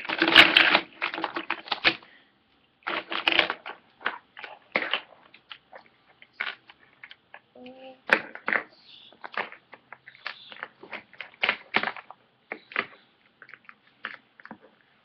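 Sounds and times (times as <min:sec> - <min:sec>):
plastic toy blocks clacking: 0:00.0 - 0:02.0, 0:02.8 - 0:07.4, 0:08.1 - 0:14.8.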